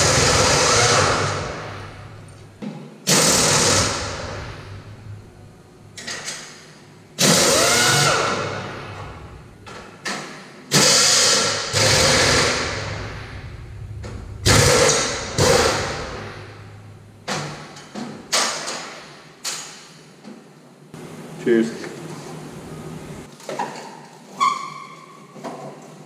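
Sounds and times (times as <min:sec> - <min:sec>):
impact wrench bursts: 0:00.0 - 0:02.1, 0:03.1 - 0:04.7, 0:07.2 - 0:09.0, 0:10.7 - 0:13.2, 0:14.4 - 0:16.4.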